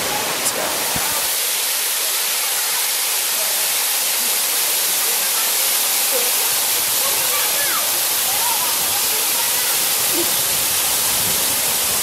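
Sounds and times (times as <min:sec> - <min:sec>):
waterfall rushing over rock: 0:00.0 - 0:12.0.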